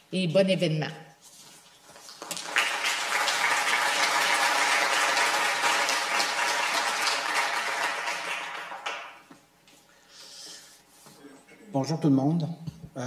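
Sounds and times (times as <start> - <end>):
audience applauding: 2.2 - 9.3.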